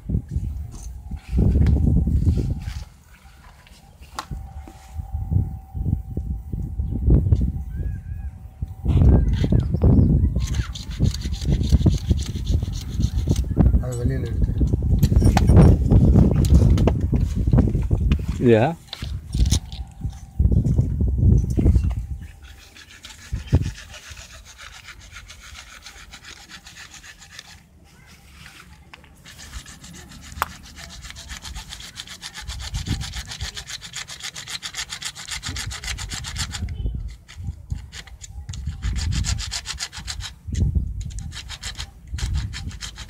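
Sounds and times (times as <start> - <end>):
hacksaw cutting plastic pipe: 22.5 - 27.6, 29.2 - 40.4, 41.0 - 43.0.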